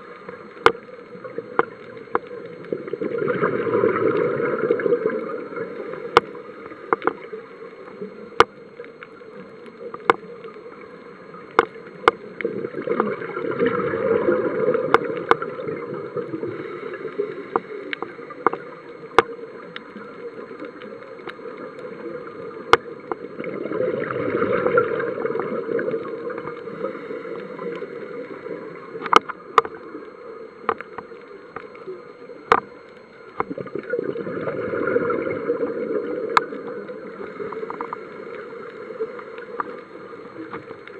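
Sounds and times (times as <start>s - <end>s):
scuba regulator breathing bubbles: 2.7s - 6.2s, 23.3s - 29.0s, 33.7s - 38.6s.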